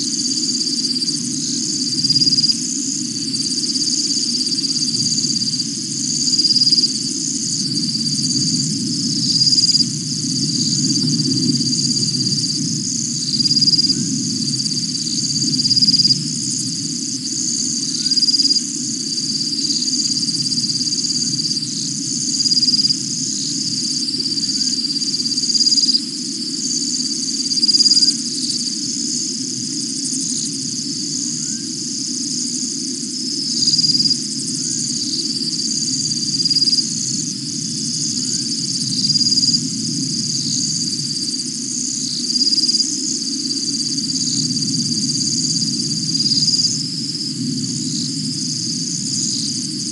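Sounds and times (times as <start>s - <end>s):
continuous low hum: 0.0s - 49.9s
insects trilling: 0.0s - 49.9s.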